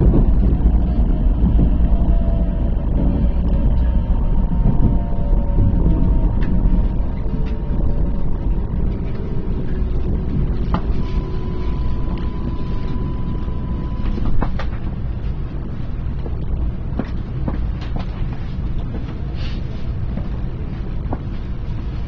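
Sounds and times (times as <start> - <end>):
train motor whine: 0.0 - 15.8
train rumbling: 0.0 - 22.0
thin steady whistle: 10.8 - 14.4.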